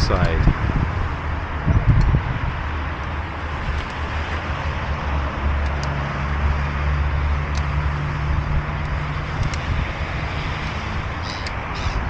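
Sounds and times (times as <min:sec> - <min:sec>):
road traffic: 0:00.0 - 0:12.0
passing vehicle engine hum: 0:00.5 - 0:12.0
gulls calling: 0:11.2 - 0:12.0.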